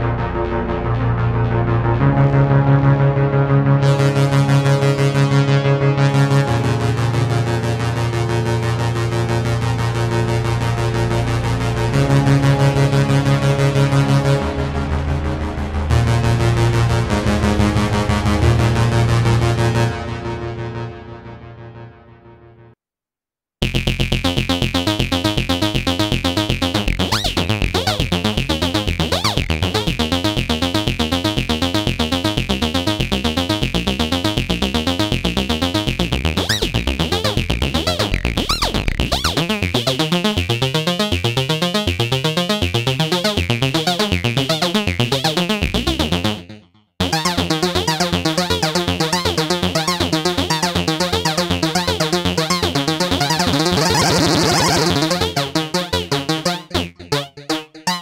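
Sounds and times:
arpeggiated synth notes: 0:23.6 - 0:58.0.

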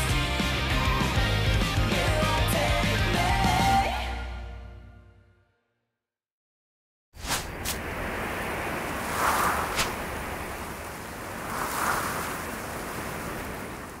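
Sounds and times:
whoosh sound effects: 0:07.2 - 0:07.9, 0:08.9 - 0:12.9.

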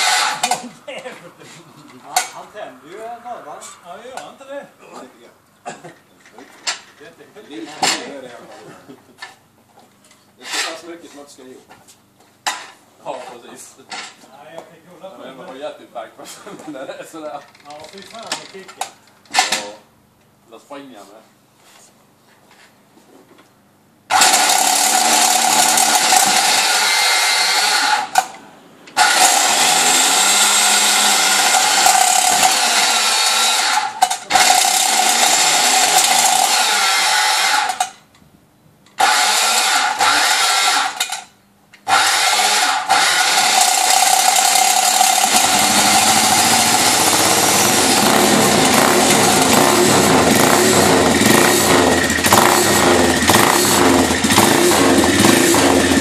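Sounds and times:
motorcycle engine firing: 0:24.1 - 0:26.7, 0:43.5 - 0:56.0
electric roller starter whine: 0:24.1 - 0:38.0, 0:39.0 - 0:41.2, 0:41.9 - 0:56.0.

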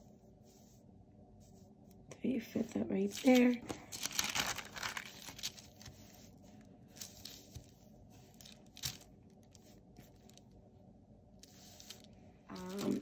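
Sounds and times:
sticker sheet crinkling: 0:03.1 - 0:10.4, 0:11.4 - 0:13.0.

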